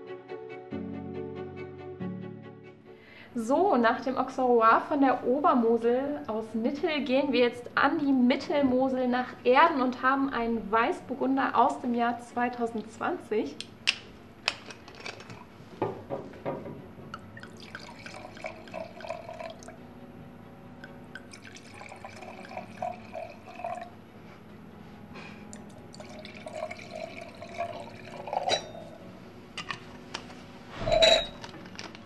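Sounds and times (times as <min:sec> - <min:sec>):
wine pouring into glass: 0:17.2 - 0:19.8, 0:20.8 - 0:23.9, 0:25.5 - 0:29.0, 0:30.8 - 0:31.4.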